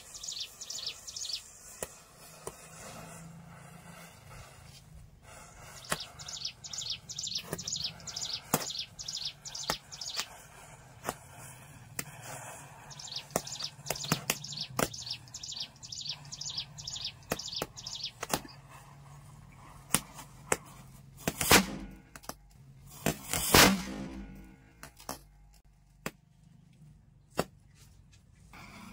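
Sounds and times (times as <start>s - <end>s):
bird chirping: 0.0s - 1.8s, 5.6s - 10.5s, 12.6s - 18.6s
fireworks crackling and popping: 0.0s - 25.2s
fireworks fizzing burst: 5.2s - 15.3s, 22.9s - 24.4s.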